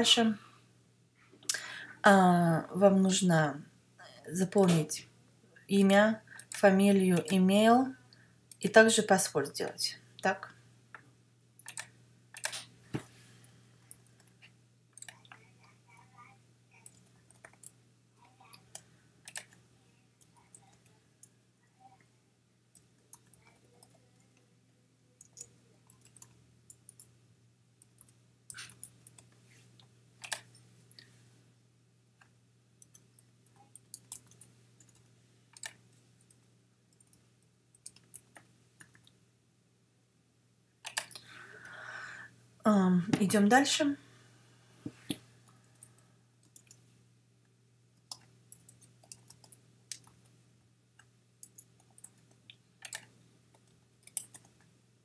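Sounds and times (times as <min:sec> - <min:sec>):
faint low hum: 0:00.0 - 0:55.0
keyboard typing: 0:11.5 - 0:12.7, 0:13.9 - 0:15.5, 0:16.8 - 0:17.8, 0:18.4 - 0:19.6, 0:25.2 - 0:27.1, 0:27.8 - 0:29.4, 0:30.2 - 0:31.0, 0:32.2 - 0:39.1, 0:40.8 - 0:41.3, 0:45.8 - 0:46.8, 0:48.0 - 0:50.4, 0:51.0 - 0:54.7.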